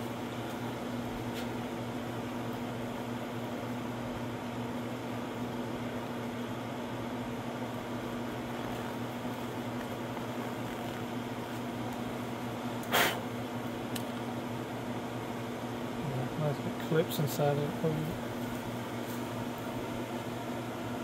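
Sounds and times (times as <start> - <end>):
electric motor humming: 4.6 - 12.9
short loud hiss: 12.9 - 13.2.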